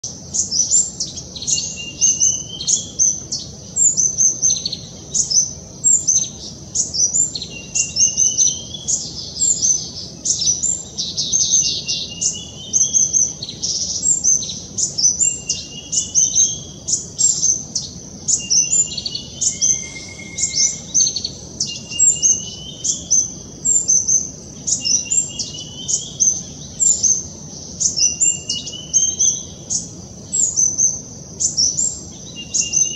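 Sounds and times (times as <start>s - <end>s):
sunbird calling: 0.0s - 32.9s
short rising bird note: 19.4s - 21.2s.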